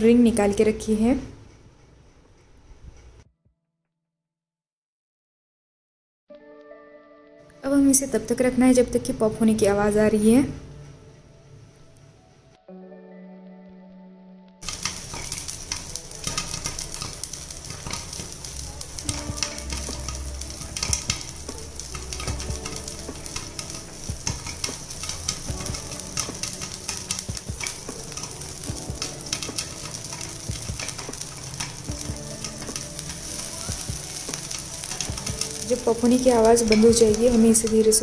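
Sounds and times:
hot oil sizzling: 0:14.6 - 0:38.0
popcorn popping: 0:14.6 - 0:38.0.

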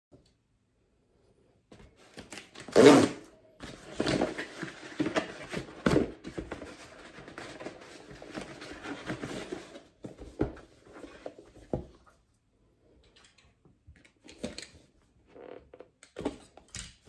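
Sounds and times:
cardboard tearing: 0:02.4 - 0:03.3.

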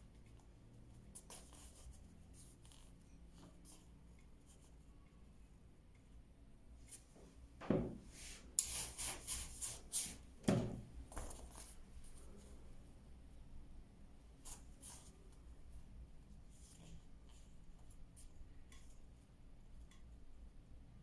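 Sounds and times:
soft thump on board: 0:07.6 - 0:08.0.

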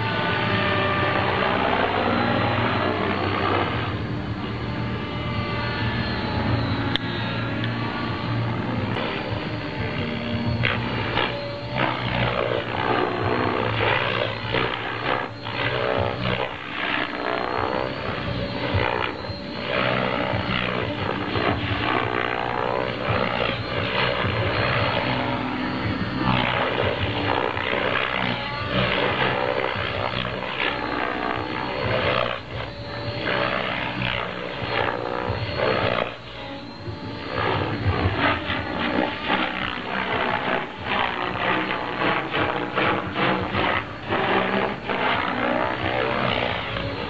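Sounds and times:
model helicopter rotor and motor whine: 0:00.0 - 0:47.0.

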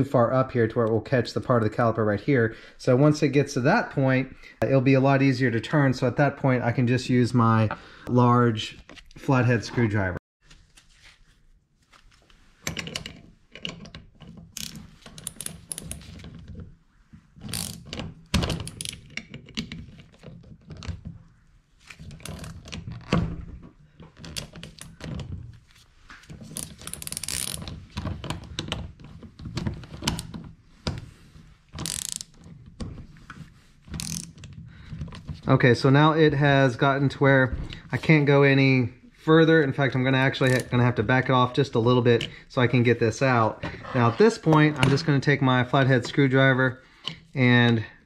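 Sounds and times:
hand tool metallic clicks and clunks: 0:12.6 - 0:16.6, 0:17.4 - 0:20.9, 0:26.4 - 0:28.8, 0:31.8 - 0:32.9, 0:33.9 - 0:35.1, 0:40.3 - 0:40.8.

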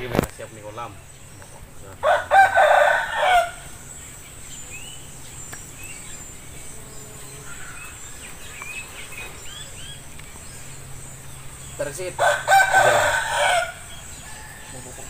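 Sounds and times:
high insect buzz: 0:00.0 - 0:15.0
small birds chirping: 0:00.0 - 0:15.0
rooster crowing: 0:02.0 - 0:03.9, 0:11.9 - 0:15.0.

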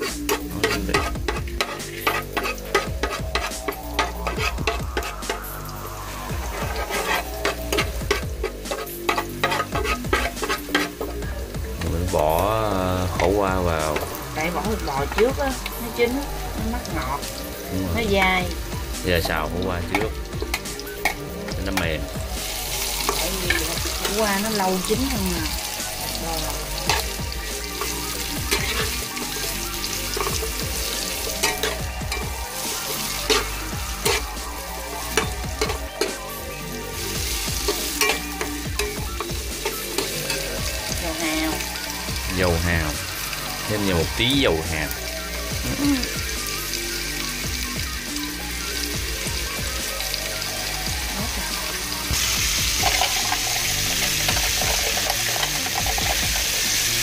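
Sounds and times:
metal spatula scraping a pan: 0:00.0 - 0:11.2, 0:26.8 - 0:36.2, 0:37.0 - 0:41.0, 0:52.2 - 0:56.6
background music: 0:00.0 - 0:57.0
vegetables sizzling in hot oil: 0:00.0 - 0:57.0.

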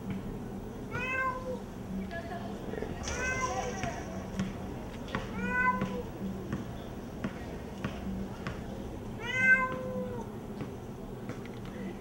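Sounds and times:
cat meowing: 0:00.9 - 0:01.6, 0:05.4 - 0:06.0, 0:09.2 - 0:10.2.

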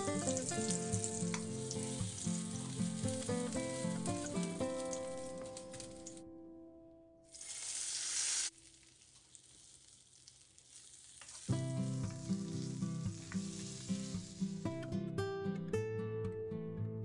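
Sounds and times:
loud sizzle of frying: 0:00.0 - 0:06.1, 0:07.3 - 0:14.9
faint frying hiss: 0:00.0 - 0:06.2, 0:07.2 - 0:15.2
acoustic guitar music: 0:00.0 - 0:07.4, 0:11.5 - 0:17.0.

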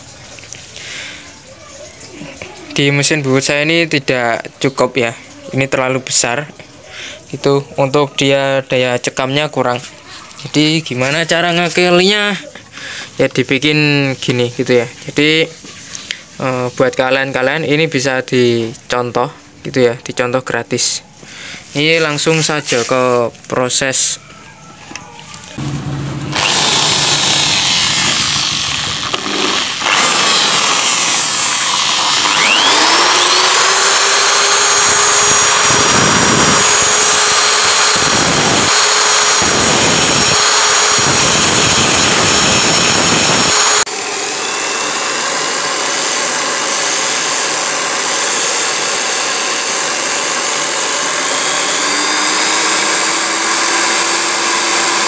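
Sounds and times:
electric drill whine: 0:24.9 - 0:55.0
bench grinder grinding metal: 0:25.6 - 0:55.0.

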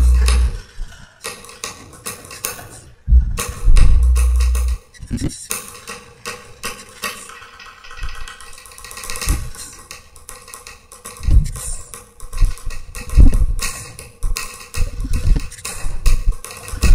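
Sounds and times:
deep percussion thuds: 0:00.0 - 0:00.6, 0:03.1 - 0:04.8.

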